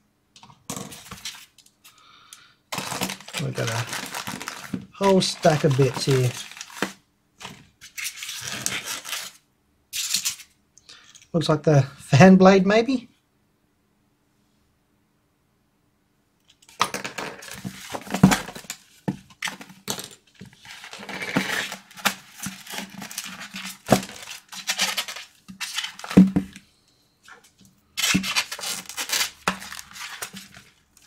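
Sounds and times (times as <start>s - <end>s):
plastic parts clicking and clattering: 2.7s - 7.6s
plastic bags crinkling: 2.7s - 9.4s, 20.6s - 26.6s, 28.0s - 31.0s.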